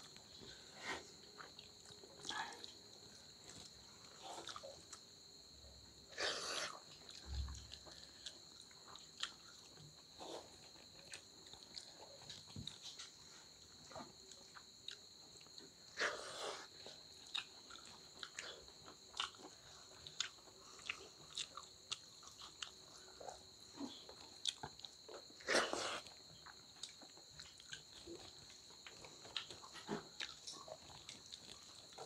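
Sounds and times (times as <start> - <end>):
wet chewing and lip-smacking: 6.7 - 13.2, 16.8 - 25.4, 26.0 - 32.0.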